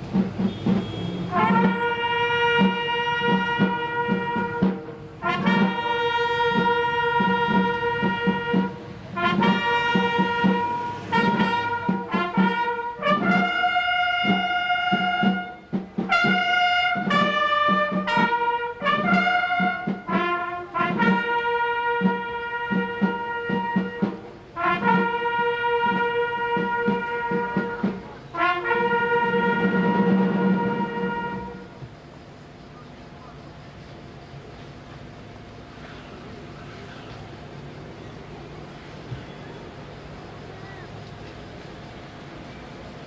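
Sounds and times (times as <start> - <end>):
brass band playing slow music: 0.0 - 32.0.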